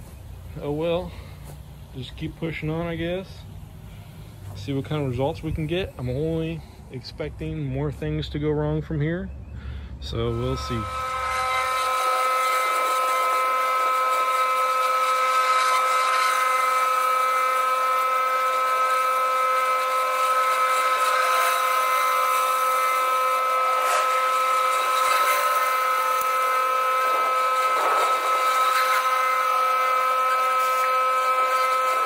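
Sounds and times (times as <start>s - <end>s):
pressure washer engine whine: 0.0s - 7.8s, 9.5s - 32.0s.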